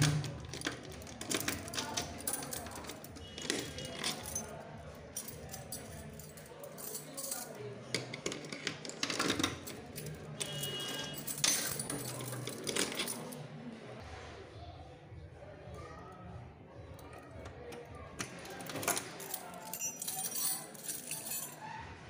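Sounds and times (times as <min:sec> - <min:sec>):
lock clicking and rattling: 0:00.0 - 0:04.5
metal keys jangling: 0:00.0 - 0:13.4, 0:17.7 - 0:21.6.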